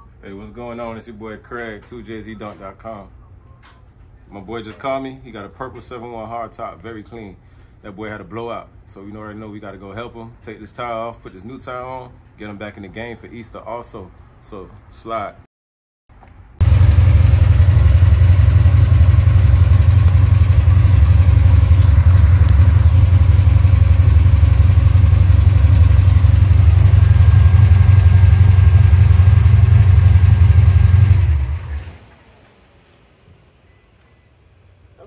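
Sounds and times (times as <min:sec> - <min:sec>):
loud low rumble: 0:16.6 - 0:31.8.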